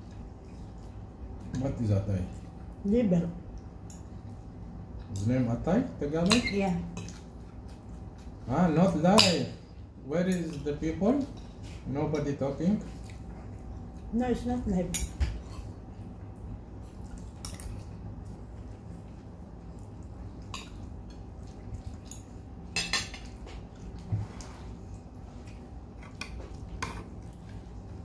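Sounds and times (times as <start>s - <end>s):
faint steady hum: 0.0s - 28.0s
cutlery clinking on plates: 22.7s - 23.5s.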